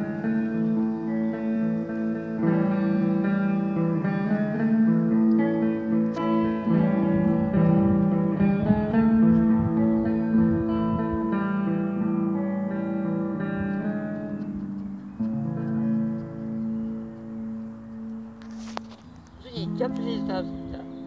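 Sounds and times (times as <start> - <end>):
plucked guitar chords: 0.0 - 21.0.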